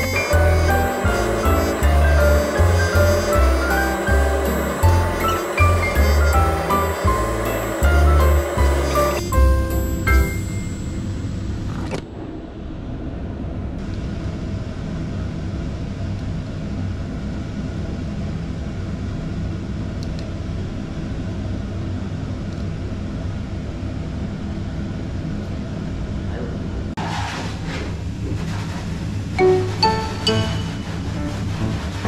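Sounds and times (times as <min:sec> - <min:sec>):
blow dryer running: 0:00.0 - 0:10.5.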